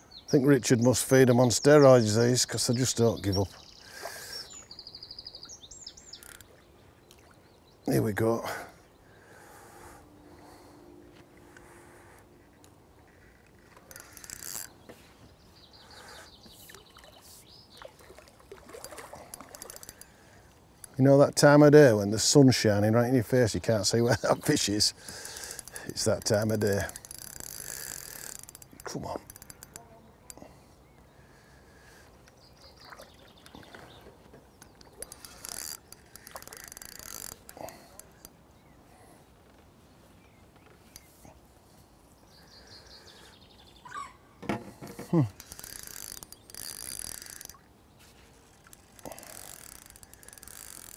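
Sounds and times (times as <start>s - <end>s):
birds chirping: 0.0s - 50.9s
fishing reel clutch ratcheting: 6.2s - 6.5s, 13.1s - 14.7s, 18.8s - 20.2s, 25.0s - 30.4s, 34.6s - 38.4s, 45.3s - 47.6s, 48.6s - 50.9s.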